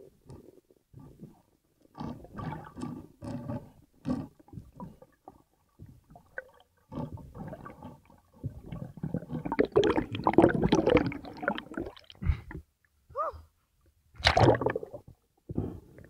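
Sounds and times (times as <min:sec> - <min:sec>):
water gurgling underwater: 0:02.0 - 0:12.6, 0:14.2 - 0:15.2.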